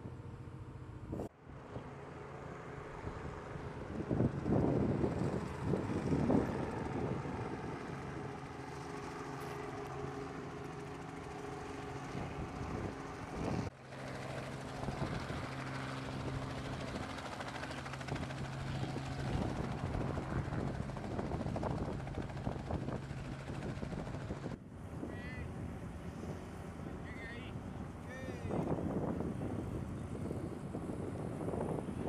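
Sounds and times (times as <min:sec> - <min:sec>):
wind on microphone: 0:03.0 - 0:08.4, 0:12.0 - 0:13.7, 0:17.9 - 0:32.0.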